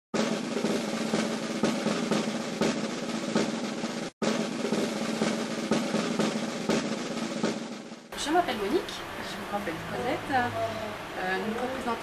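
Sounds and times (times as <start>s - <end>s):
snare drum roll: 0.2s - 8.8s.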